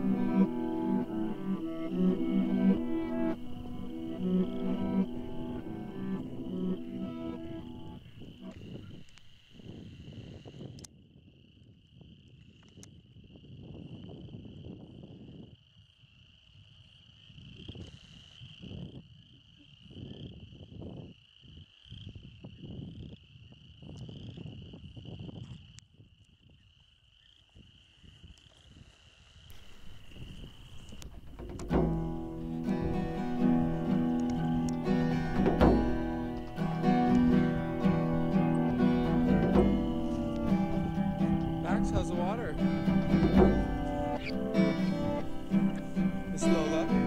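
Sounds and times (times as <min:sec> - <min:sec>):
low rumbles: 0:00.0 - 0:08.6, 0:29.6 - 0:47.0
crickets and frogs calling: 0:00.0 - 0:47.0.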